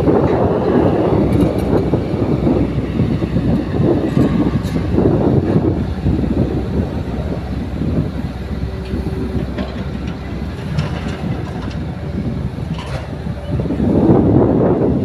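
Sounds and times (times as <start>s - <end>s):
excavator diesel engine drone: 0.0s - 15.0s
light clicks and clanks: 12.7s - 13.1s.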